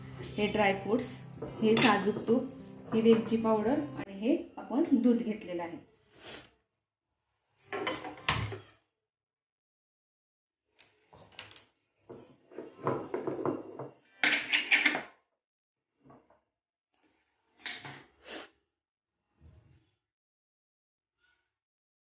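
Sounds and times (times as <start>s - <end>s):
kitchen utensils clattering: 0.0s - 4.1s.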